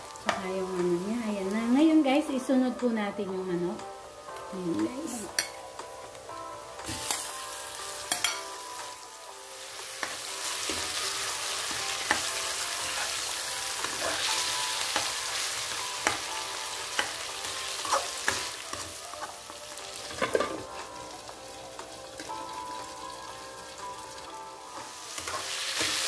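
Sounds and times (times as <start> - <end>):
chicken sizzling in hot oil: 6.6 - 26.0.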